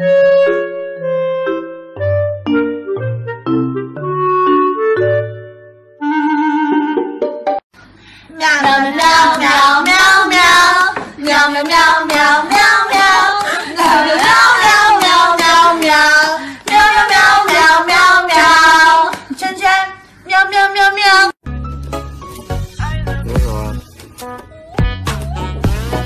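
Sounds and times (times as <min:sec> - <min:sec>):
high-pitched voice singing: 0:22.8 - 0:26.0.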